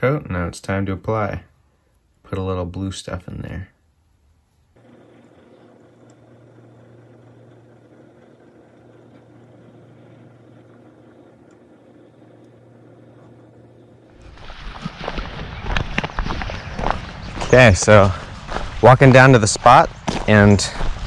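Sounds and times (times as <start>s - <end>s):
small electric motor humming: 4.7s - 14.5s
footsteps crunching on gravel: 14.2s - 21.0s.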